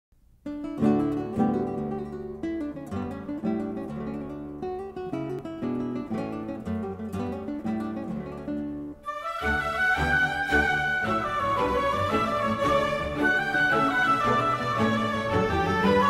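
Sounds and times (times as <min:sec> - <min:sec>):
acoustic guitar piece: 0:00.2 - 0:16.0.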